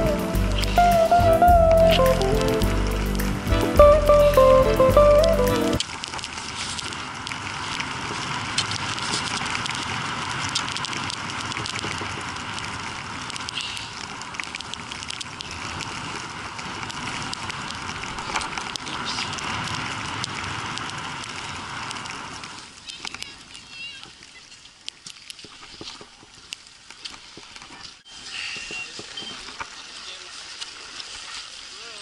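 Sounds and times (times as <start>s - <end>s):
skis hissing and scraping on snow: 6.3s - 14.2s, 15.4s - 23.9s.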